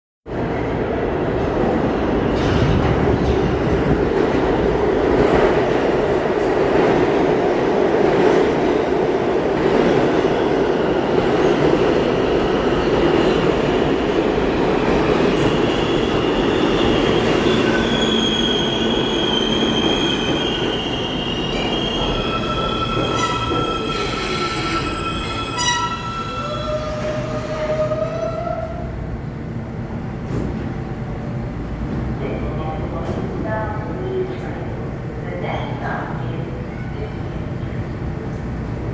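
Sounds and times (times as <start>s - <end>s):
train wheels rumbling on rails: 0.3s - 34.6s
high-pitched brake squeals: 16.9s - 27.4s.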